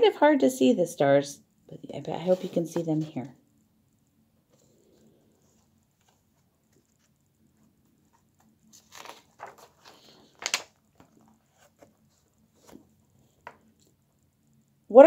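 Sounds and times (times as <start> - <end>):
book pages rustling: 2.2 - 3.2, 4.5 - 14.0
page snapping: 8.7 - 11.2.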